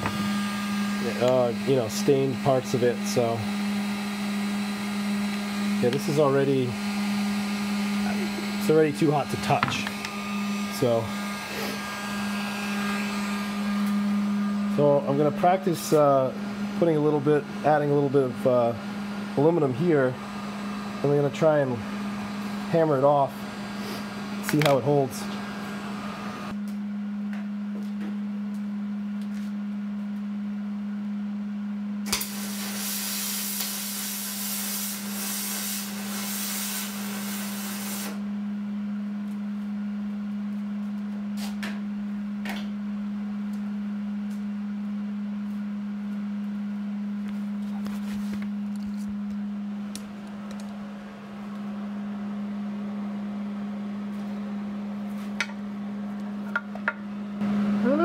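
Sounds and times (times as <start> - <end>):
steady low hum: 0.0 - 35.6, 38.1 - 58.0
welding arc hissing crackle: 32.1 - 38.2.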